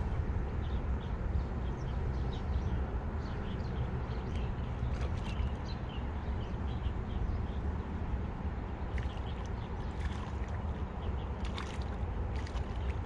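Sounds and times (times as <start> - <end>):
wind rumble on microphone: 0.0 - 13.0
fish splashing in water: 4.8 - 5.6, 8.8 - 13.0.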